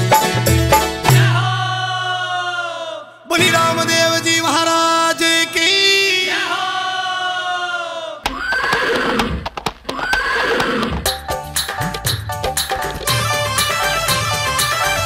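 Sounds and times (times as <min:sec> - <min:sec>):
horse neighing: 0:08.3 - 0:11.1
rhythmic knocking: 0:10.9 - 0:15.0
held musical note: 0:13.0 - 0:15.0.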